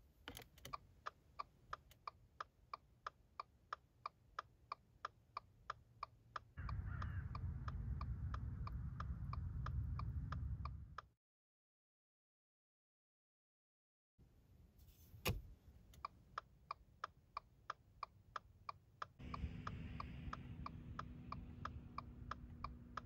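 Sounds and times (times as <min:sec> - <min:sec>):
low steady rumble: 0:06.6 - 0:11.1, 0:19.1 - 0:23.0.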